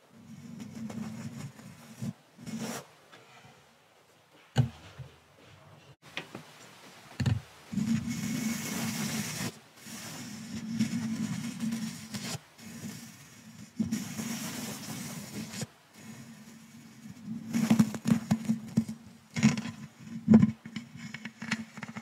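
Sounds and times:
brush stroking microphone grille: 0:00.2 - 0:02.9, 0:07.6 - 0:22.0.

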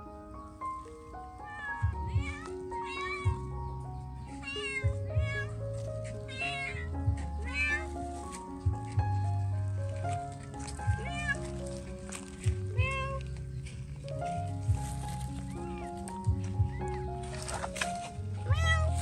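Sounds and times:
background music with steady beat: 0:00.0 - 0:19.0
kitten meowing: 0:01.4 - 0:03.5, 0:04.3 - 0:08.0, 0:10.8 - 0:11.6, 0:12.7 - 0:13.3, 0:18.4 - 0:19.0.

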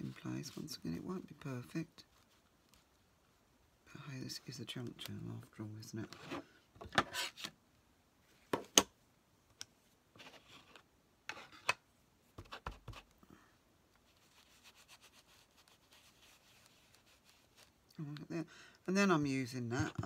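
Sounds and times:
brush scrubbing over paper: 0:14.0 - 0:17.8.

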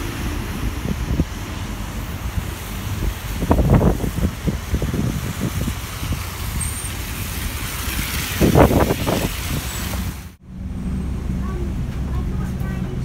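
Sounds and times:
wind buffeting microphone: 0:00.0 - 0:10.2
bus engine running: 0:00.0 - 0:13.0
street traffic rumble: 0:00.0 - 0:13.0.

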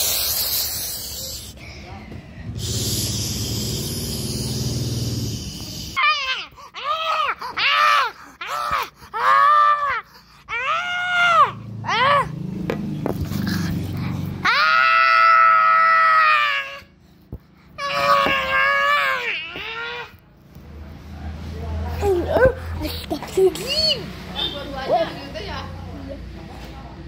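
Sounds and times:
boy rasping: 0:00.0 - 0:12.3, 0:13.1 - 0:20.2
boy screaming shrilly: 0:06.0 - 0:12.3, 0:14.4 - 0:16.9, 0:17.8 - 0:20.1.

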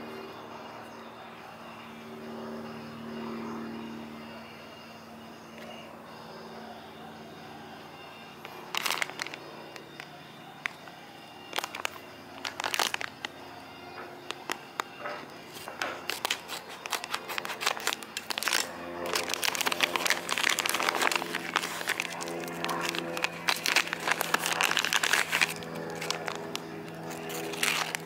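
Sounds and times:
plastic bag crinkling: 0:08.5 - 0:10.9, 0:11.5 - 0:13.4, 0:14.2 - 0:28.0.

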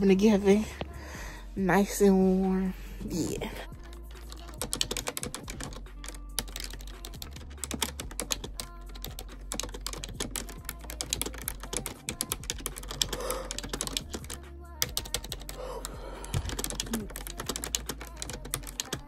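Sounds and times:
keyboard typing: 0:03.8 - 0:19.0.

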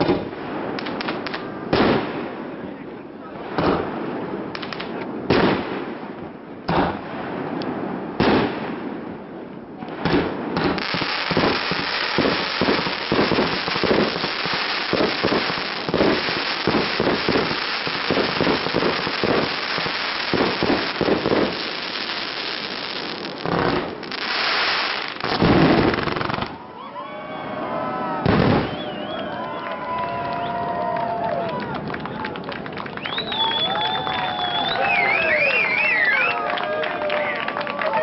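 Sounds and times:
continuous dense hiss: 0:00.0 - 0:38.0
firework shells bursting: 0:09.9 - 0:26.6.

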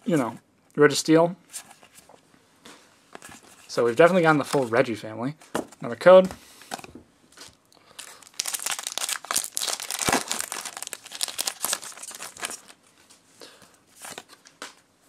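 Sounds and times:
cards rustling: 0:06.7 - 0:12.8, 0:13.9 - 0:14.8
foil wrapper tearing and crinkling: 0:07.4 - 0:12.8.

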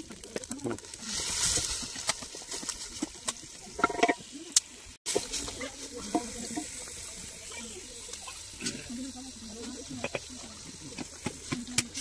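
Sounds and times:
stick mixing meat in pot: 0:00.0 - 0:12.0
knocks and scrapes against pot: 0:01.5 - 0:04.2.

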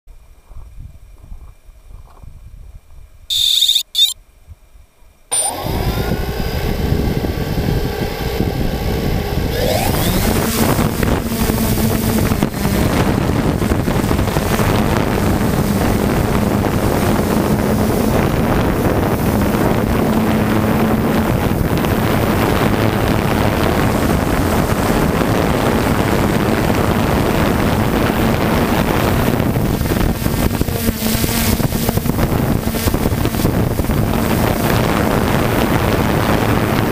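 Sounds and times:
drone propellers whirring: 0:03.3 - 0:04.2, 0:05.3 - 0:36.9
short high beeps: 0:03.3 - 0:04.2, 0:05.3 - 0:05.6.

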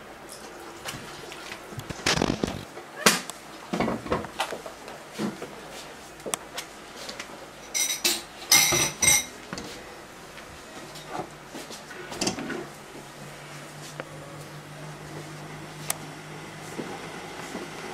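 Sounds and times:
glass or metal objects clinking: 0:07.7 - 0:09.4.

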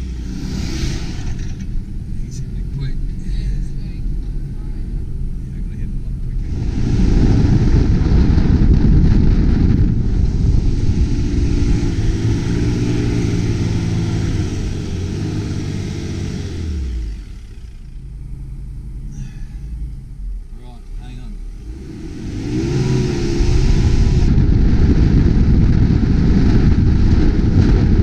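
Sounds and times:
loud rushing noise: 0:00.0 - 0:17.3, 0:21.6 - 0:28.0
vehicle engine working hard: 0:00.0 - 0:28.0.

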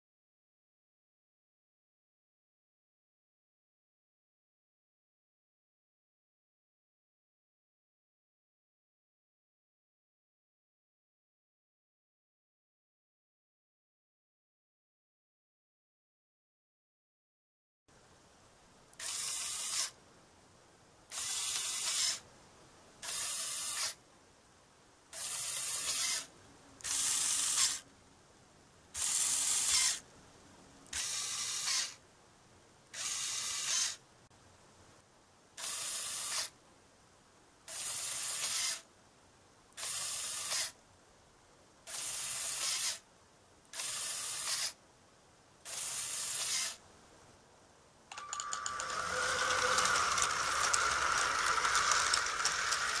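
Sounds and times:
small motor and gears whirring: 0:19.0 - 0:20.0, 0:21.1 - 0:22.2, 0:23.0 - 0:24.0, 0:25.2 - 0:27.8, 0:29.0 - 0:30.0, 0:30.9 - 0:32.0, 0:32.9 - 0:34.0, 0:35.6 - 0:36.5, 0:37.7 - 0:38.8, 0:39.8 - 0:40.8, 0:41.9 - 0:43.0, 0:43.7 - 0:44.8, 0:45.7 - 0:46.8, 0:48.1 - 0:53.0.

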